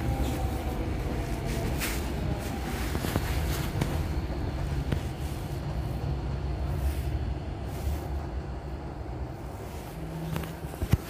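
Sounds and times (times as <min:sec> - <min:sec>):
electric train rumbling past: 0:00.0 - 0:10.8.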